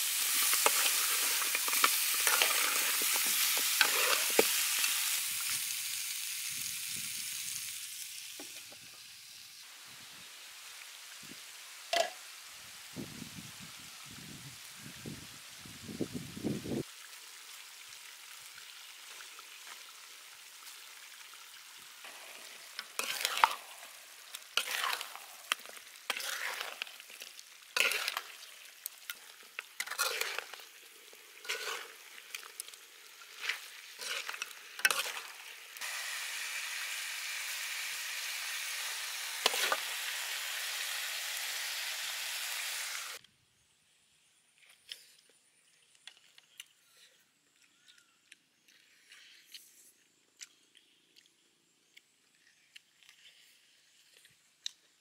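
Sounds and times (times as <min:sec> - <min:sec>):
meat sizzling in a wok: 0:00.0 - 0:43.2
spatula scraping a pan: 0:00.1 - 0:04.8, 0:22.1 - 0:35.4, 0:39.4 - 0:39.8.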